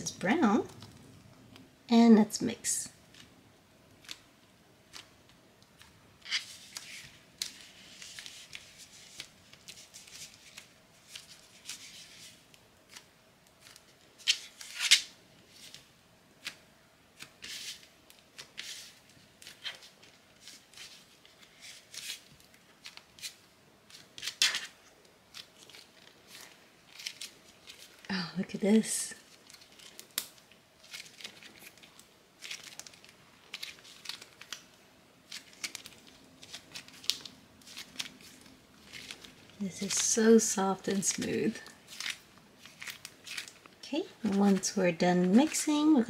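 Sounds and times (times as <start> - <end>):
slime being kneaded by hand: 28.7 - 46.0.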